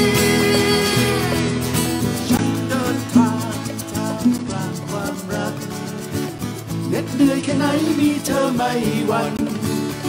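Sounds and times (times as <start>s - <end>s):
live band instrumental: 0.0s - 7.2s
guitar: 0.0s - 10.0s.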